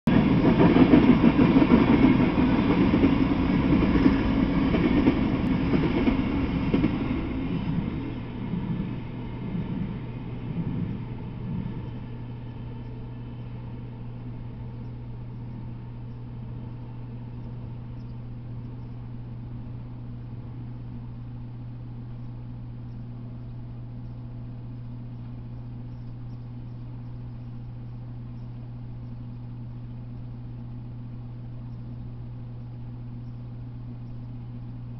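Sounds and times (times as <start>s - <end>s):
freight train rolling past: 0.1s - 17.8s
low hum: 0.1s - 34.9s
constant hiss: 0.4s - 34.9s
faint high ticks: 14.6s - 19.2s, 22.0s - 34.7s.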